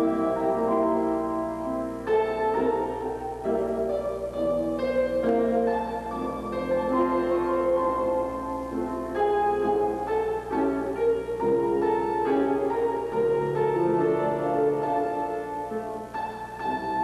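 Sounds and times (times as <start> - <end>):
piano playing slow chords: 0.0 - 17.0.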